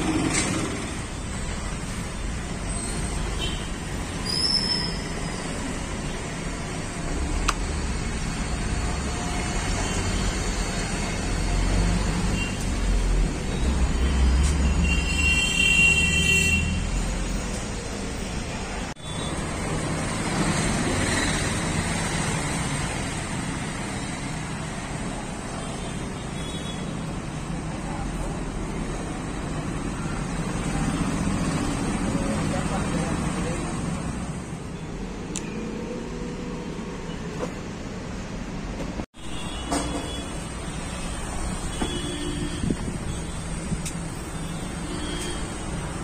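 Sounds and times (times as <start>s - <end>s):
traffic rumble: 0.0s - 46.0s.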